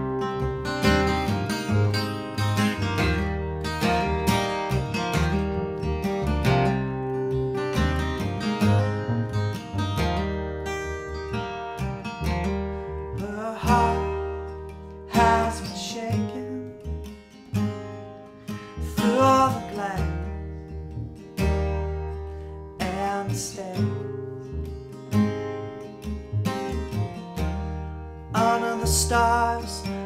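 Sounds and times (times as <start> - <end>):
sliding melodic line: 0.0 - 17.1
acoustic guitars strumming: 0.0 - 30.0.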